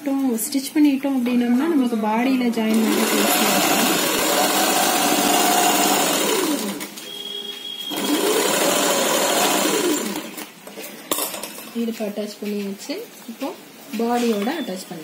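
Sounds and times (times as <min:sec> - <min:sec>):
sewing machine stitching: 0:02.7 - 0:06.9, 0:07.9 - 0:10.4.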